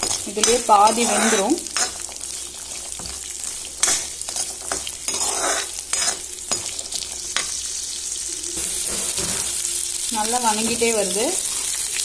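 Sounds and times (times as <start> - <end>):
metal spatula scraping pan: 0.0 - 7.6
garlic sizzling in oil: 0.0 - 12.0.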